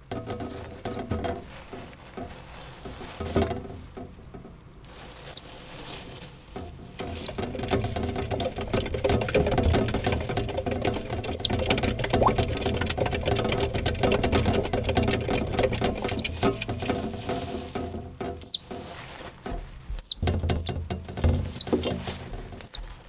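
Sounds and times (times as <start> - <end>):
squirrel squeaks: 5.3 - 5.5, 7.0 - 14.7, 15.3 - 16.4, 18.4 - 18.7, 19.9 - 20.8, 21.4 - 21.8, 22.6 - 22.9
metal exercise wheel rattling: 6.8 - 18.8, 20.0 - 23.0.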